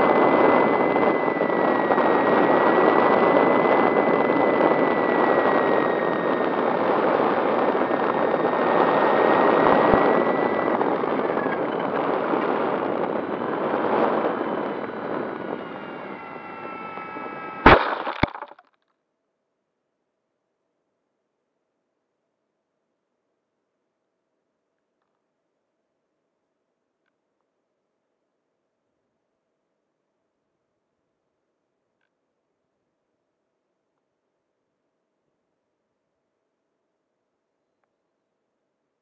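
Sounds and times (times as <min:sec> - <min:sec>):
plane hitting ground: 0:00.0 - 0:18.5
propeller motor whine: 0:00.0 - 0:18.5.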